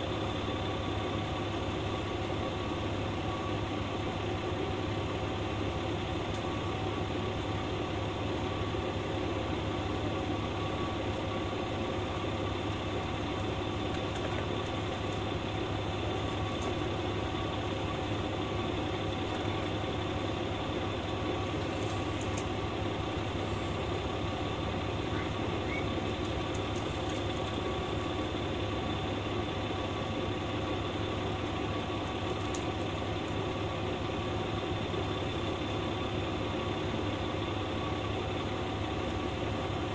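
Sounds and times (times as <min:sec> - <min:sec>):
diesel engine idling: 0:00.0 - 0:39.9.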